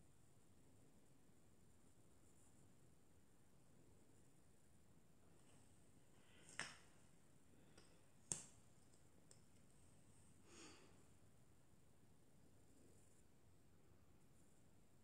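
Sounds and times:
soft breath: 10.2s - 11.2s.

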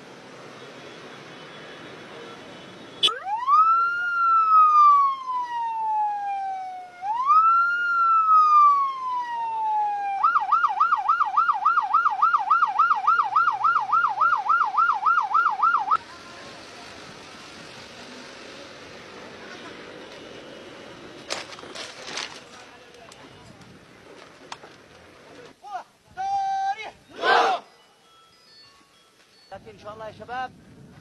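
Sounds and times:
road noise: 0.0s - 31.0s
siren wailing and yelping: 3.0s - 16.0s.

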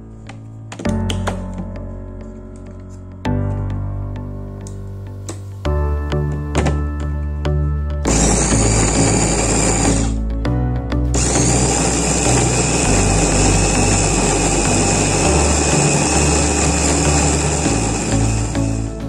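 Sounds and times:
electric chopper whining: 8.1s - 10.2s, 11.1s - 18.9s.

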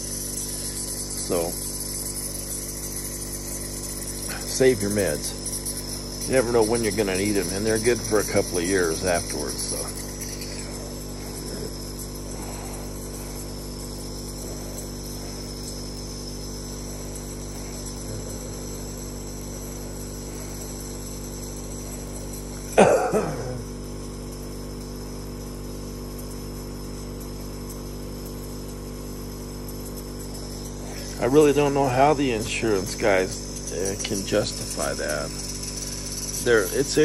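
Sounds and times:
air compressor humming: 0.0s - 37.0s
person coughing: 22.7s - 23.7s.

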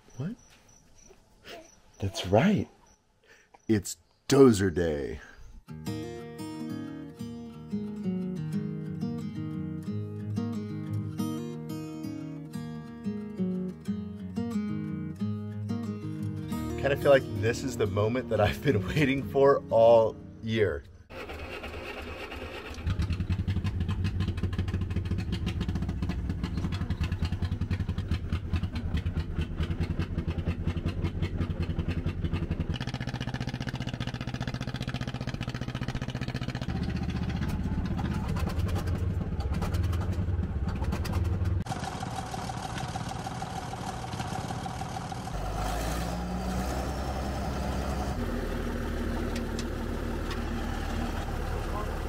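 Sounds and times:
bulldozer engine clattering: 21.1s - 52.0s.

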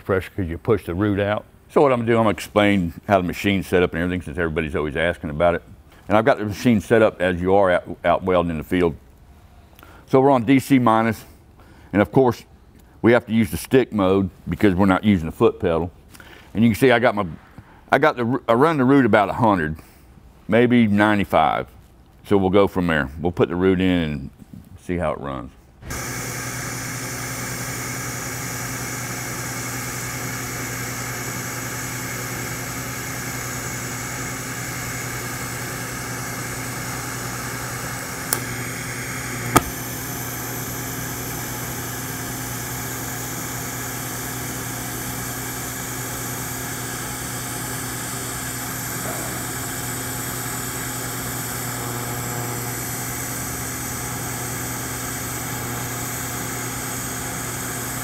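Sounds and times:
welding arc humming and hissing: 25.9s - 58.0s.

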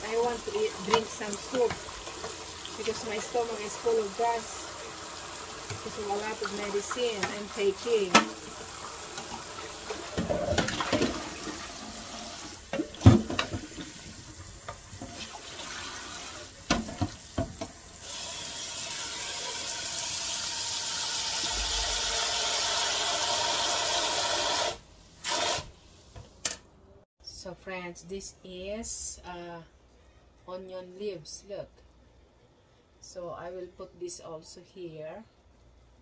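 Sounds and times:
tap water running into a pot: 0.0s - 25.7s.

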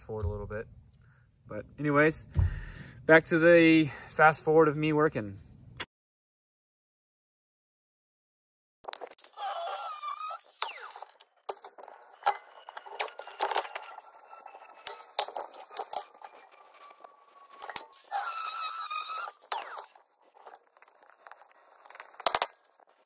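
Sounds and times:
power tool motor whining: 9.2s - 11.3s, 13.1s - 22.2s.

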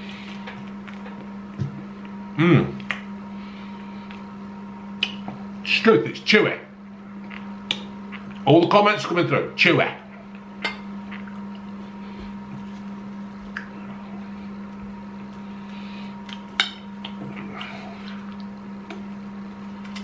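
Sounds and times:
low electrical hum: 0.0s - 20.0s
person chewing wetly: 16.2s - 19.0s.

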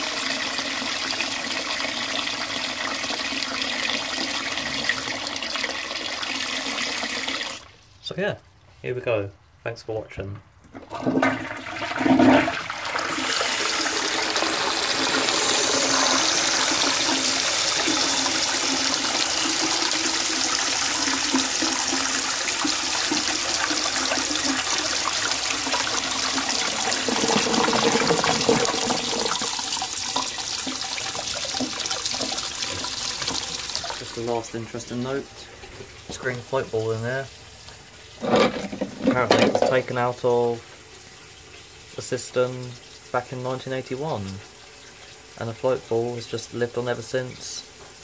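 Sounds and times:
toilet flushing: 0.0s - 7.8s, 10.7s - 48.0s
cistern refilling with hissing spray: 12.7s - 38.4s, 39.8s - 48.0s.

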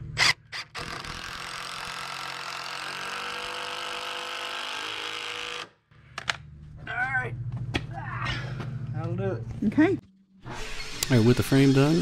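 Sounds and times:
power drill driving screw into wood: 0.2s - 5.8s, 10.4s - 12.0s.

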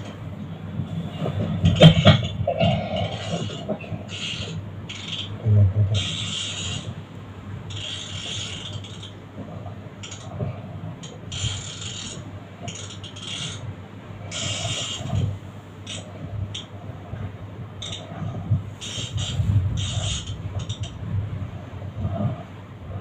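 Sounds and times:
fishing reel cranking: 3.1s - 5.4s, 6.0s - 6.9s, 7.7s - 9.2s, 10.0s - 10.3s, 11.3s - 13.6s, 14.3s - 15.3s, 15.9s - 16.1s, 18.8s - 20.9s.

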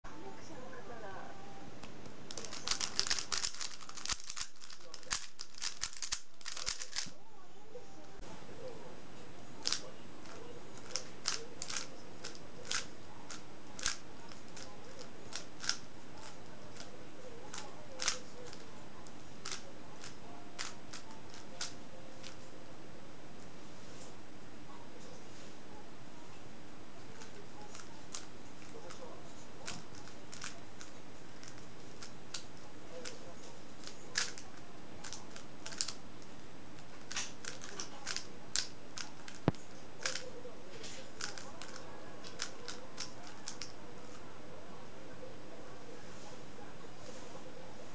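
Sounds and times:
puzzle cube clicking: 2.3s - 7.1s, 9.6s - 16.9s, 17.5s - 18.7s, 19.4s - 22.4s, 27.2s - 29.0s, 29.6s - 33.2s, 33.8s - 36.0s, 37.0s - 40.3s, 41.1s - 44.2s.

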